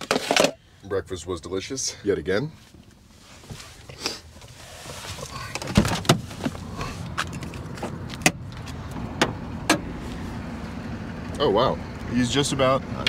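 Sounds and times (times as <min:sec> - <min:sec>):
outdoor background noise: 0:00.0 - 0:13.0
car door opening: 0:04.9 - 0:10.0
knocks and clicks in van cab: 0:05.5 - 0:09.9.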